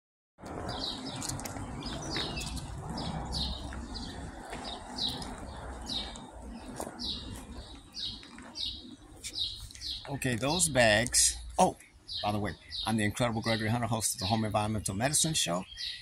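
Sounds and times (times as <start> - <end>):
low steady rumble: 0.5 - 8.3
small bird chirping: 0.7 - 16.0.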